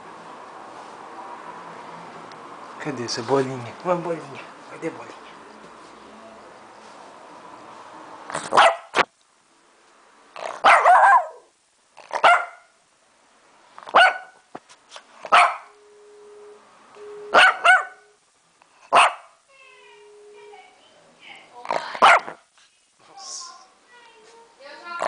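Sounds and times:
dog barking: 0:08.5 - 0:09.0, 0:10.4 - 0:11.5, 0:12.1 - 0:12.8, 0:13.9 - 0:14.4, 0:15.3 - 0:15.8, 0:17.3 - 0:18.1, 0:18.9 - 0:19.4, 0:21.9 - 0:22.4.

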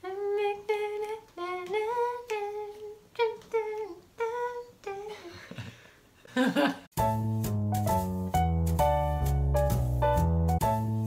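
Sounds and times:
person humming a tune: 0:00.0 - 0:05.7
person laughing: 0:05.1 - 0:06.9.

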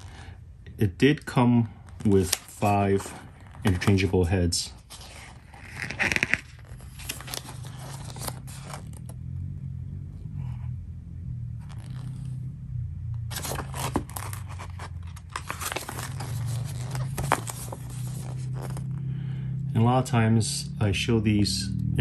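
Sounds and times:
low hum: 0:00.0 - 0:22.0
paper pages rustling: 0:01.8 - 0:09.1, 0:13.3 - 0:18.9.

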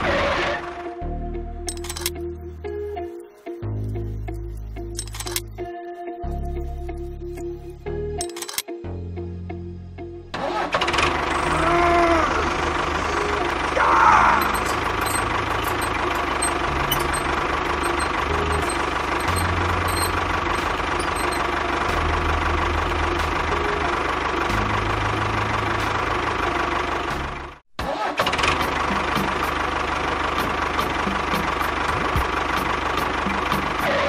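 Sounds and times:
mini tractor engine running: 0:10.4 - 0:34.0.

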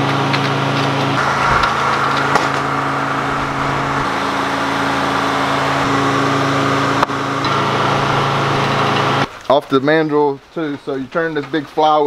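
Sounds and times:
diesel engine running: 0:00.0 - 0:09.3
hum of machinery: 0:00.0 - 0:09.3.

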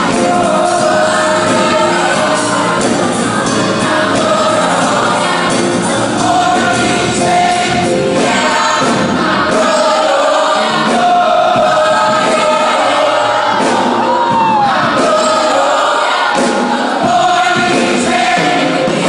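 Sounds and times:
band accompaniment: 0:00.0 - 0:19.0
choir singing: 0:00.0 - 0:19.0.

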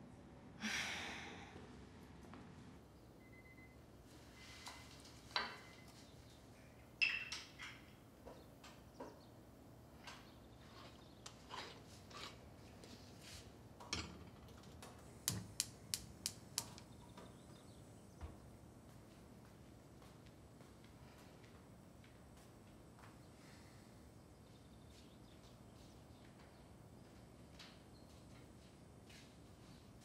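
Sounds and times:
gas hob igniter clicking: 0:15.2 - 0:16.9.

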